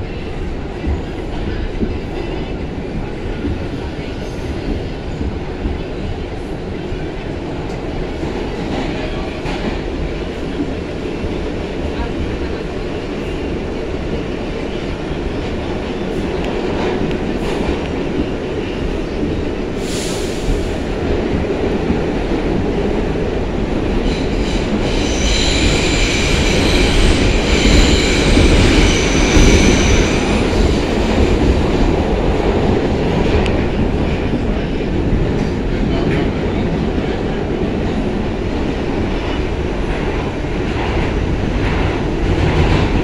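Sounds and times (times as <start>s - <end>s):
subway train rumble: 0.0s - 43.0s
wheels squealing on rails: 24.2s - 30.8s.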